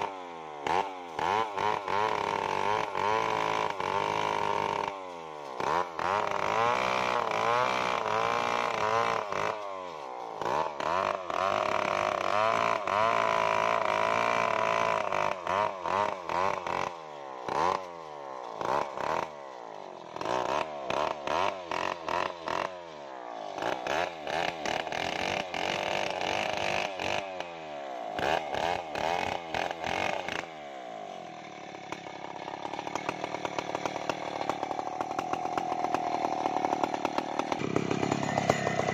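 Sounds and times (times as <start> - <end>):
chainsaw revving while cutting log: 0.0 - 38.9.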